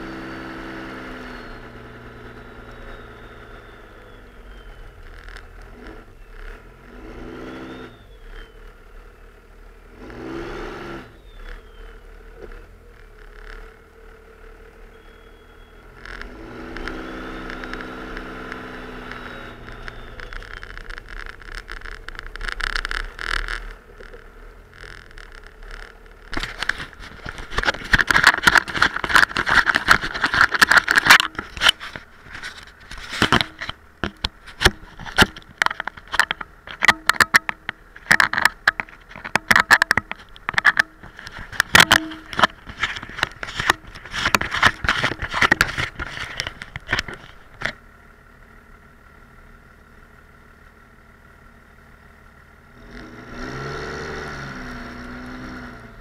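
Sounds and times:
diesel truck engine revving: 0.0 - 9.2, 9.8 - 27.8, 52.7 - 56.0
plow blade scraping through snow: 5.6 - 8.6, 9.9 - 13.7, 15.0 - 23.8, 52.8 - 56.0.

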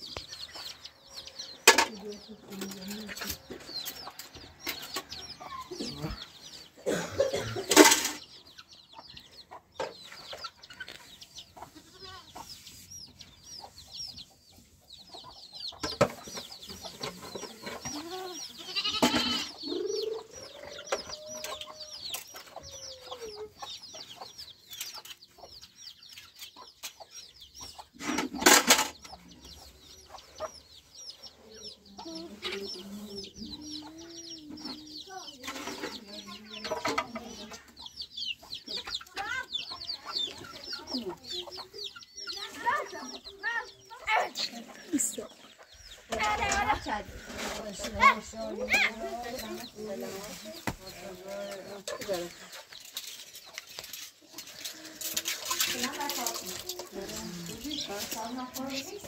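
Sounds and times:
chickens clucking: 0.0 - 59.0.

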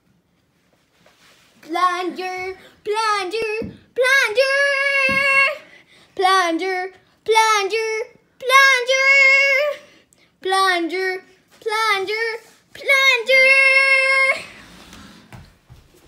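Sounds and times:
child singing: 1.6 - 5.6.

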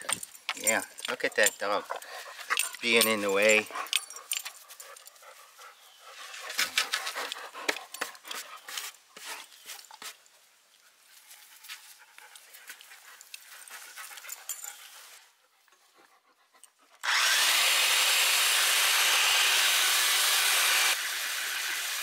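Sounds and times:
dog panting: 0.8 - 8.7, 11.2 - 17.0.

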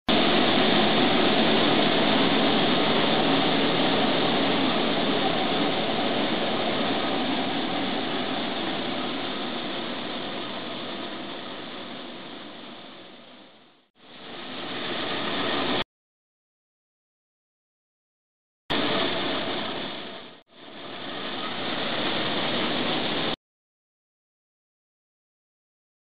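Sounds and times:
machinery mechanical hum: 0.1 - 15.8, 18.7 - 23.4.

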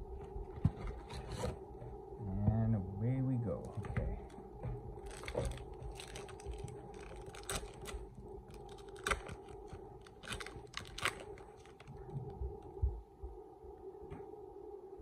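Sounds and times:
foil pack crinkling and tearing: 5.0 - 12.1.

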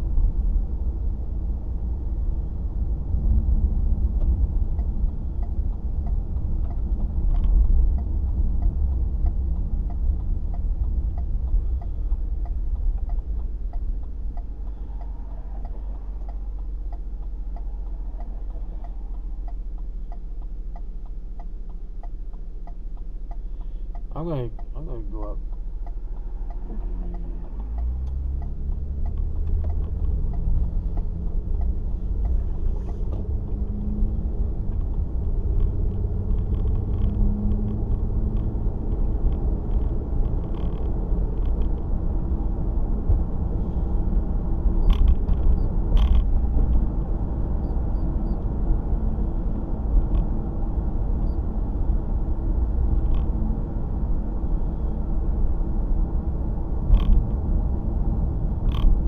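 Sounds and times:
road rumble: 0.0 - 59.0
car engine accelerating: 24.9 - 59.0.

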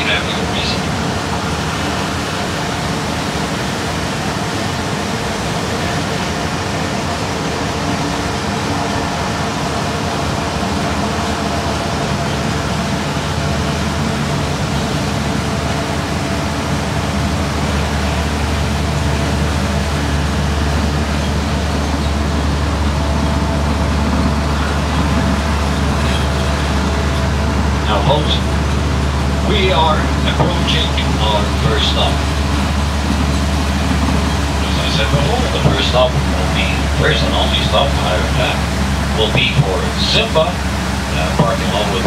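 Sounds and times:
rolling road noise: 0.0 - 42.0
tram engine hum: 0.0 - 42.0.

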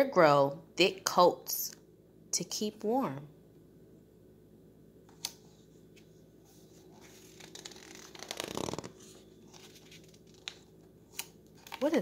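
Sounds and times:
book page rustling: 5.4 - 12.0.

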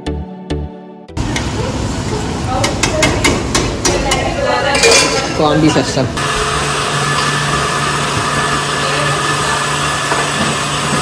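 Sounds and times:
voices: 1.3 - 6.2, 8.6 - 10.1
electric motor humming: 6.1 - 11.0.

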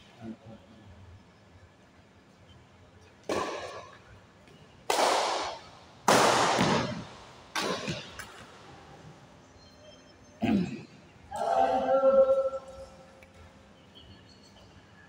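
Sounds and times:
racket hitting shuttlecock: 3.2 - 4.1, 4.9 - 8.6.

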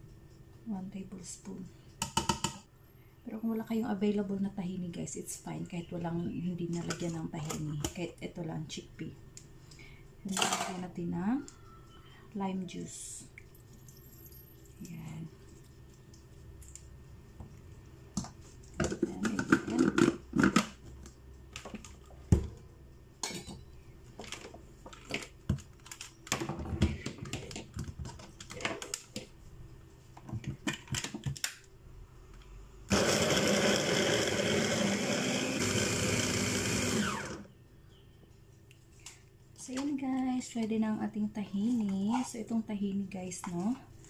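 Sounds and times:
hand blender motor running: 32.9 - 37.5.

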